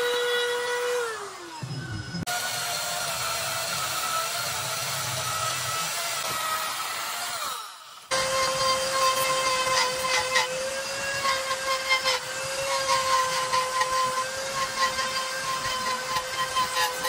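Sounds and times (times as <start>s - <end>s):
chainsaw motor whine: 0.0s - 12.9s
power tool starting: 0.0s - 17.0s.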